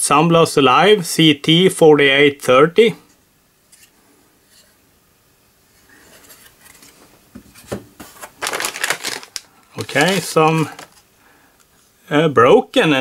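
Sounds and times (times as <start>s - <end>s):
plastic rustling: 6.0s - 11.1s.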